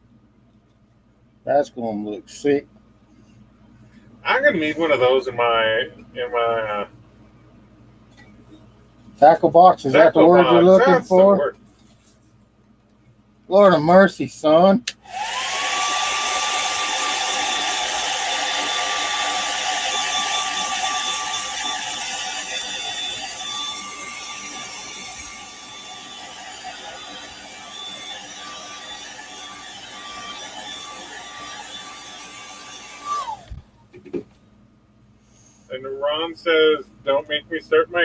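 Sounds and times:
hair dryer blowing: 15.0 - 33.6.

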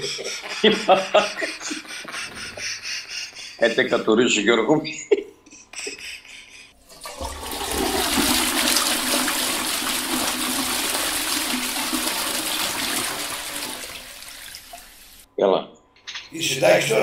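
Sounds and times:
toilet flushing: 6.8 - 15.3.

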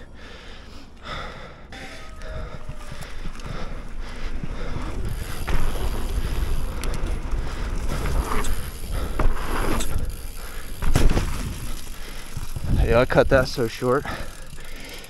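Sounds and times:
bike tyres rolling on dirt: 0.0 - 15.0
wind buffeting microphone: 2.3 - 13.6
bike knocks: 4.9 - 12.7.

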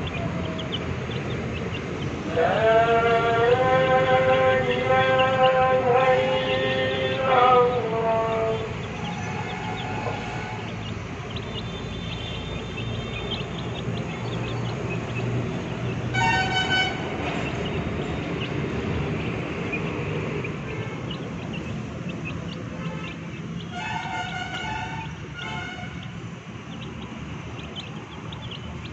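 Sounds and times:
steady low rumble: 0.0 - 28.9
horn tooting: 2.2 - 13.6, 15.9 - 17.5, 22.8 - 26.2.

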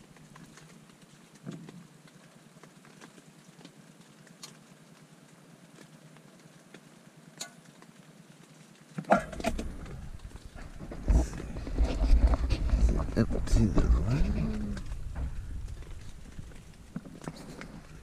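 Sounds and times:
faint steady hiss: 0.0 - 18.0
rustling and bumping: 9.0 - 18.0.

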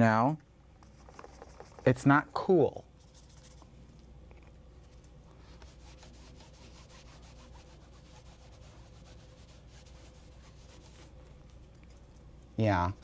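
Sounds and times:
sponge rubbing on canvas: 5.4 - 11.2.

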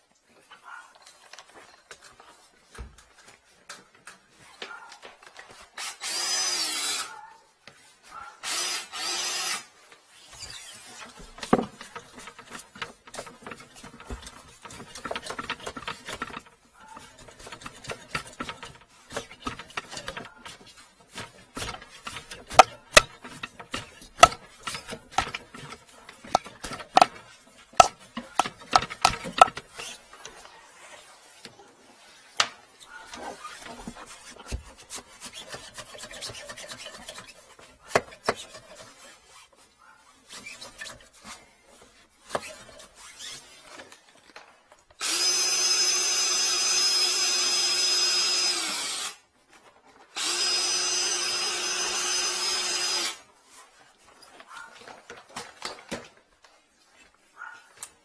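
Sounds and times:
tools and cable knocking: 11.0 - 30.4, 33.1 - 38.9
power tool motor whining: 45.0 - 49.2, 50.2 - 53.2.

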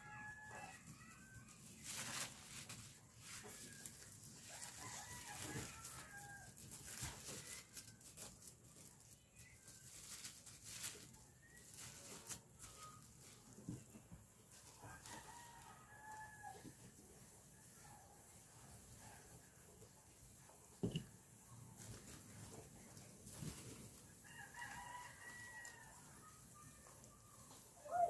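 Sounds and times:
tissue paper crinkling: 0.1 - 16.2.

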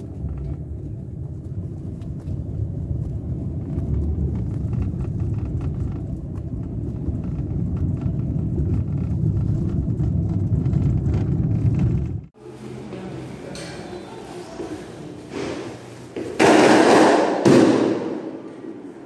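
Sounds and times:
car engine and tyre rumble: 0.0 - 12.4.

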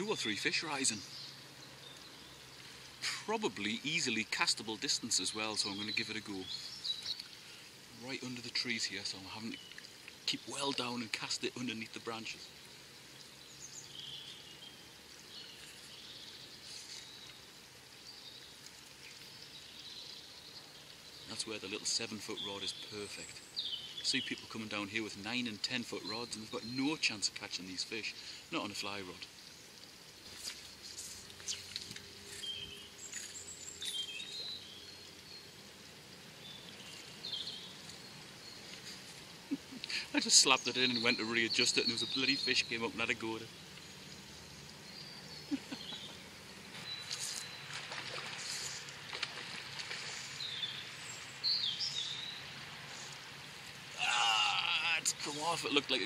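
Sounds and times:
faint steady outdoor hiss: 0.0 - 56.0
quiet riverside background noise: 0.0 - 56.0
small birds chirping: 0.0 - 56.0
faint bird chirps: 36.4 - 48.9.

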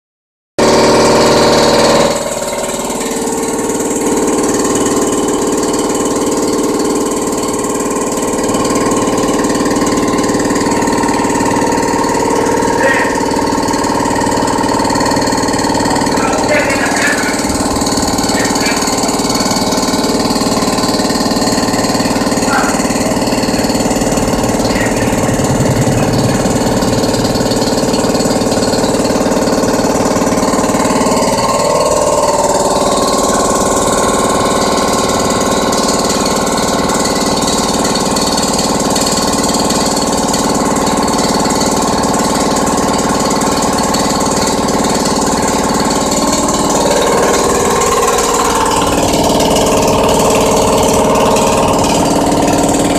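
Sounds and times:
air compressor running: 0.6 - 52.9.

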